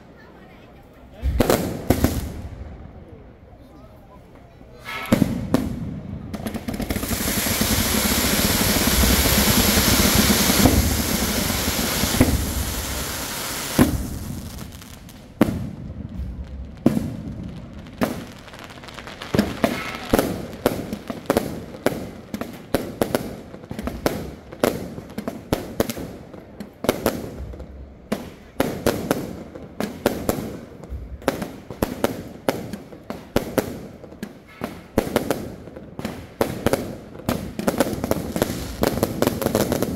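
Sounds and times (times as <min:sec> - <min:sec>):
fireworks crackling and hissing: 0:00.0 - 0:39.9
firework shells bursting: 0:06.4 - 0:23.0.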